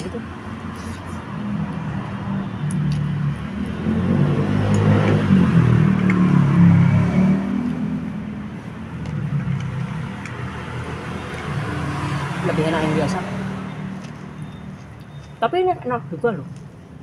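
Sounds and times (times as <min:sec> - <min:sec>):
vehicle engine passing by: 0:03.1 - 0:08.5, 0:09.2 - 0:14.1.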